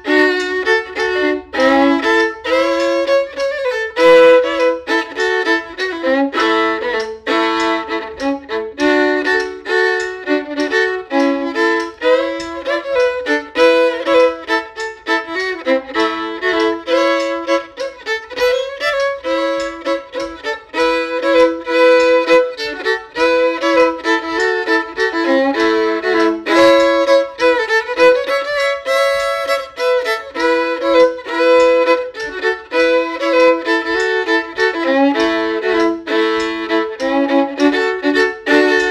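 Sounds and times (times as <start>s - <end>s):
solo fiddle tune: 0.0s - 38.9s.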